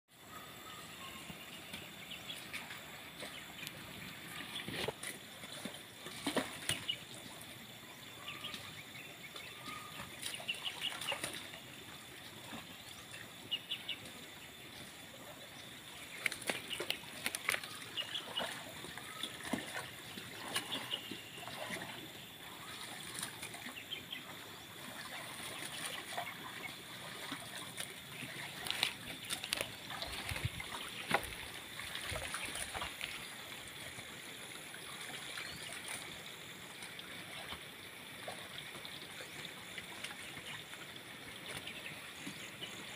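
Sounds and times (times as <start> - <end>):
bird calls: 0.2 - 11.7, 12.4 - 33.3
muddy water splashing: 0.3 - 42.9.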